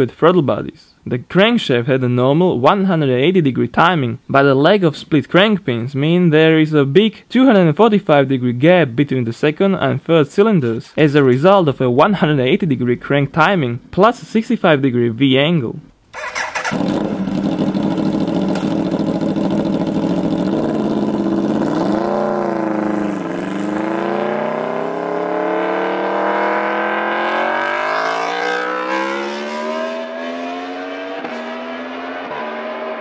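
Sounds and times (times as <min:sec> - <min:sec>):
motorcycle engine accelerating: 0:16.2 - 0:33.0.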